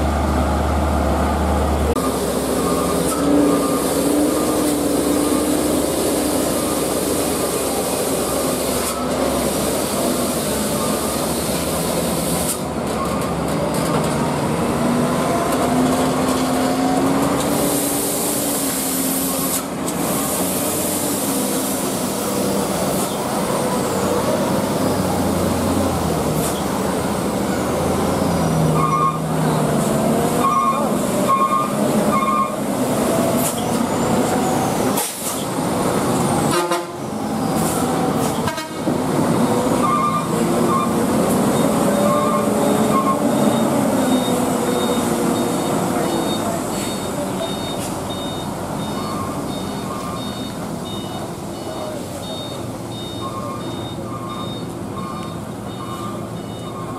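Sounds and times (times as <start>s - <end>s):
trucks labouring uphill: 0.0s - 56.9s
short horn toots: 36.5s - 37.0s.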